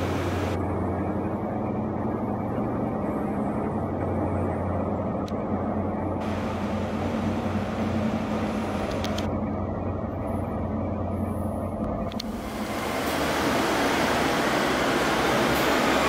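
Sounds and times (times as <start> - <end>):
diesel train engine drone: 0.0 - 16.0.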